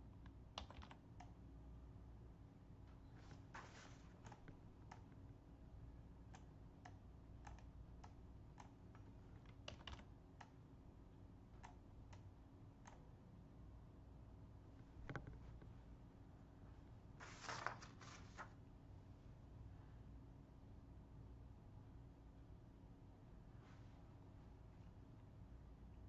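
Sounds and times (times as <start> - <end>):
low steady hum: 0.0 - 26.0
mouse and keyboard clicks: 0.2 - 1.3, 4.1 - 5.2.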